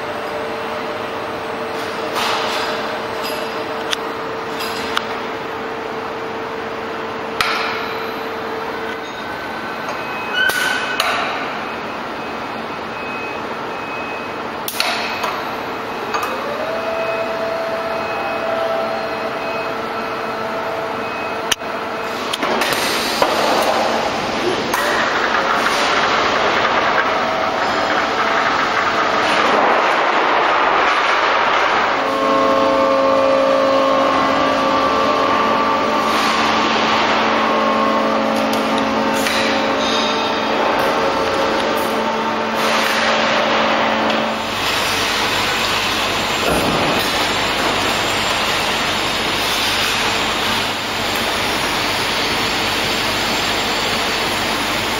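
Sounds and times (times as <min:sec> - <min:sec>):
machinery knocks and clanks: 0:22.2 - 0:32.7, 0:34.0 - 0:51.4.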